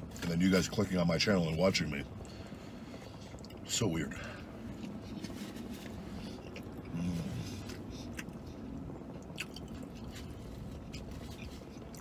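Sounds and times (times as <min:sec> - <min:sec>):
man chewing food: 0:02.1 - 0:03.6, 0:04.4 - 0:12.0.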